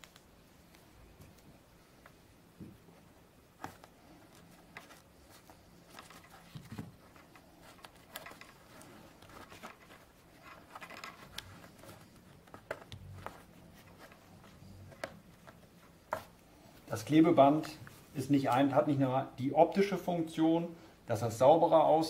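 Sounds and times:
fingers handling tape: 0:03.6 - 0:16.4.

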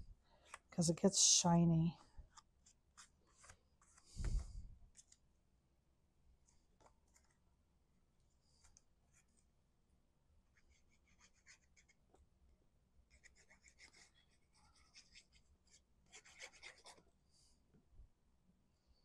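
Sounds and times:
glue bottle scratching on card: 0:13.1 - 0:17.0.

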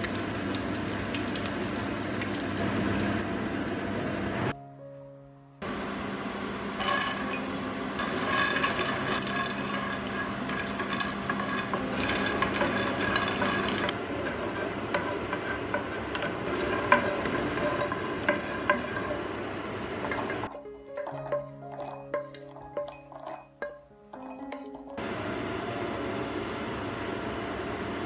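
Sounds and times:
frying hiss: 0:00.0 - 0:04.5
spatula scraping nuts in pan: 0:08.0 - 0:24.8.

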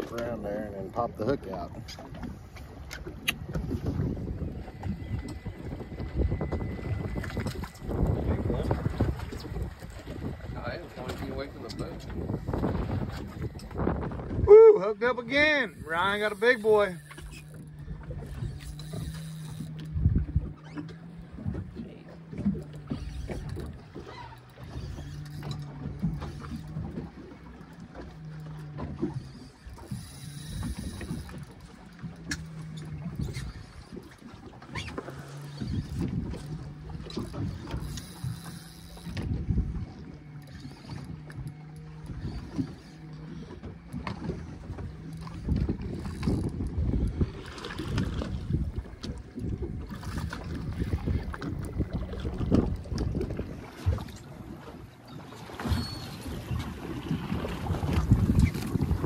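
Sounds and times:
fishing reel gears whirring: 0:00.0 - 0:59.0
wind and water against boat: 0:00.0 - 0:59.0
small reel clicks: 0:15.6 - 0:21.0, 0:22.7 - 0:26.9, 0:28.2 - 0:39.3, 0:40.2 - 0:44.2, 0:45.0 - 0:47.2.

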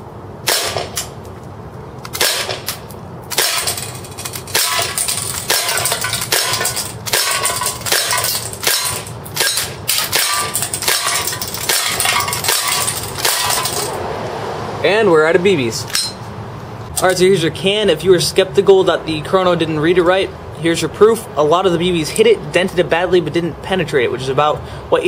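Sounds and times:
airsoft pistol firing: 0:00.5 - 0:01.0, 0:02.2 - 0:02.7, 0:03.4 - 0:03.8.

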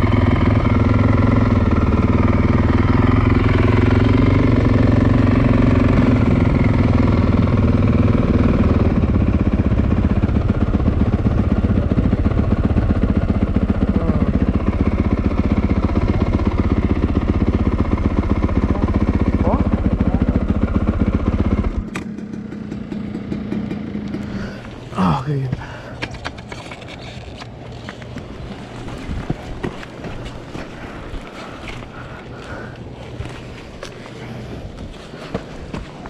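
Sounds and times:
motorcycle engine idling: 0:00.0 - 0:26.4.

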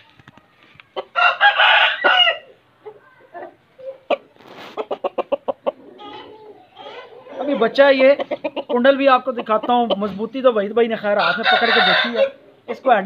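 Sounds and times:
rooster crowing: 0:01.1 - 0:02.5, 0:11.2 - 0:12.4.

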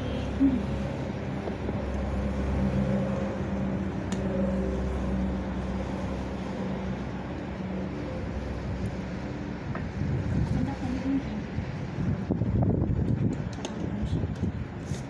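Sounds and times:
road traffic hum: 0:00.0 - 0:15.0.

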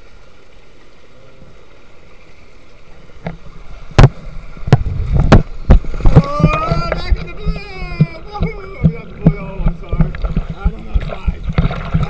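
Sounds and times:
water running down waterslide: 0:00.7 - 0:12.0
camera knocking on slide: 0:04.0 - 0:12.0.

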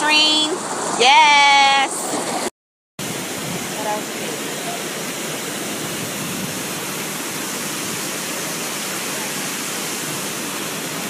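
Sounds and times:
waterfall rushing: 0:00.1 - 0:11.0.

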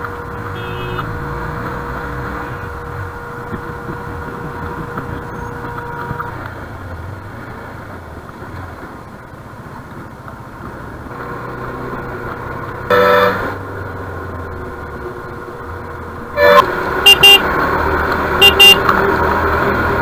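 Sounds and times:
motorcycle engine running: 0:00.0 - 0:08.4, 0:16.7 - 0:19.7
vehicle horn blaring: 0:00.3 - 0:01.3, 0:12.9 - 0:13.6, 0:16.4 - 0:17.4, 0:18.4 - 0:18.9
wind noise: 0:00.3 - 0:07.2.

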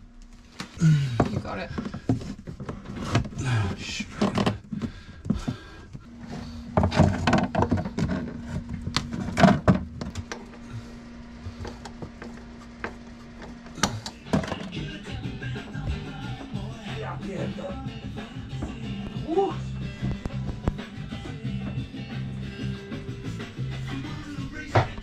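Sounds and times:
steady hum: 0:00.0 - 0:25.0
plastic hoses knocking and rustling: 0:00.6 - 0:10.6.

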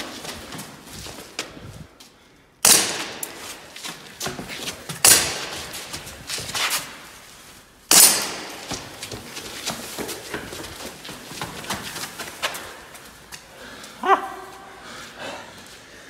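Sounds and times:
airsoft pistol shots: 0:02.6 - 0:03.4, 0:05.0 - 0:05.6, 0:07.9 - 0:08.7.

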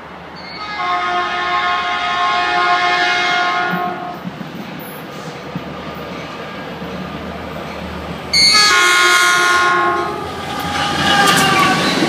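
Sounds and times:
train air horn blast: 0:00.6 - 0:04.2, 0:08.3 - 0:10.3.

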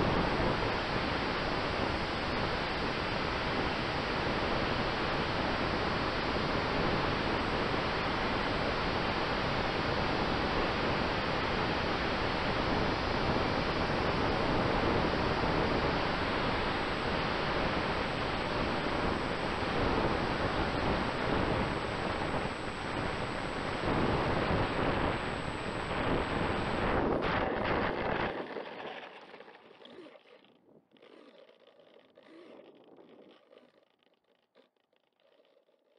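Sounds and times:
faint steady whine: 0:00.0 - 0:35.9
rushing wind noise: 0:09.4 - 0:30.1
model aircraft rolling on grass: 0:27.0 - 0:35.9.

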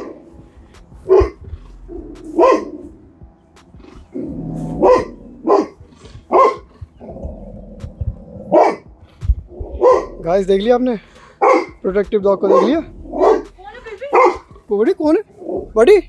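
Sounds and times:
dog barking: 0:01.0 - 0:03.0, 0:04.4 - 0:07.2, 0:08.4 - 0:08.9, 0:09.7 - 0:10.2, 0:11.4 - 0:13.5, 0:14.1 - 0:14.5
dog growling: 0:01.0 - 0:03.0, 0:03.8 - 0:10.2, 0:12.5 - 0:13.6, 0:15.4 - 0:15.8.

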